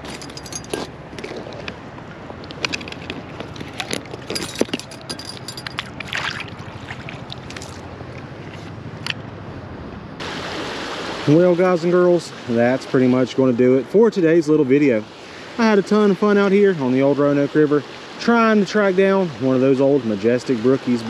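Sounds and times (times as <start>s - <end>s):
water splashes and drips: 0.0s - 9.2s, 10.2s - 13.2s
river rushing: 0.0s - 21.0s.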